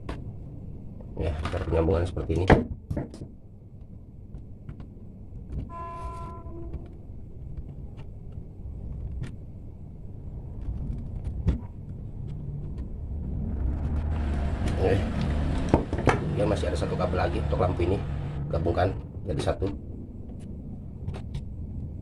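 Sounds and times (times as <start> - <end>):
horn-like tone: 5.7 - 7.0
motor vehicle rumble passing: 12.3 - 20.0.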